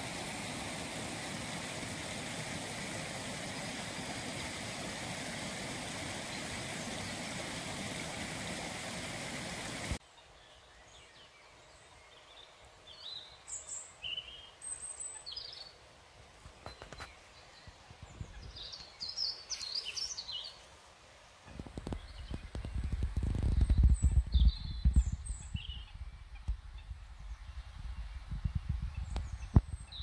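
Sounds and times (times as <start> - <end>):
stream flowing: 0.0 - 10.0
small birds chirping: 21.5 - 27.6.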